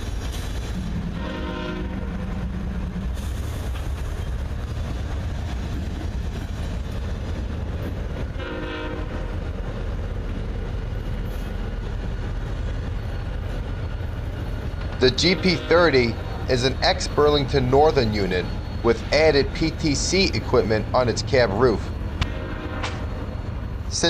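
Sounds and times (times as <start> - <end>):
diesel locomotives rumbling past: 0.0 - 24.0
train horn: 1.1 - 2.3, 8.3 - 9.4, 15.1 - 16.2, 22.2 - 23.3.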